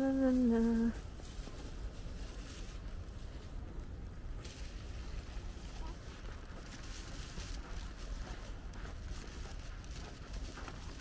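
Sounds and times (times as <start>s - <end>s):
steady low rumble: 0.0s - 11.0s
footsteps crunching on snow: 4.4s - 11.0s.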